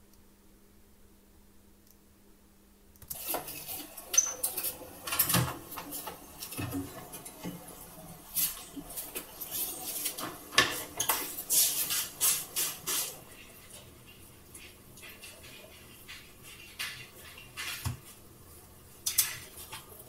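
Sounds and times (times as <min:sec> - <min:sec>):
oven mitts rustling: 0:03.1 - 0:20.0
oven door opening: 0:03.2 - 0:07.6.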